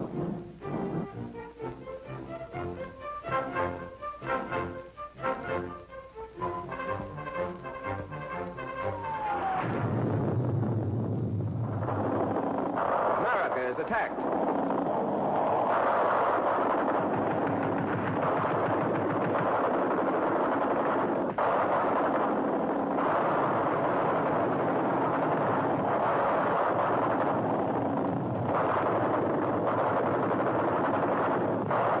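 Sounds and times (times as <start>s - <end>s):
machine-gun fire: 11.5s - 32.0s.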